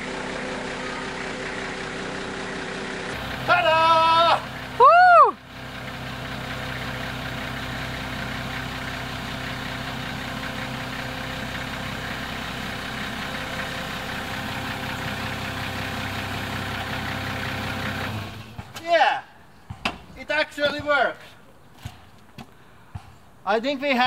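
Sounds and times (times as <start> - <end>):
machine engine idling: 0.0 - 18.7.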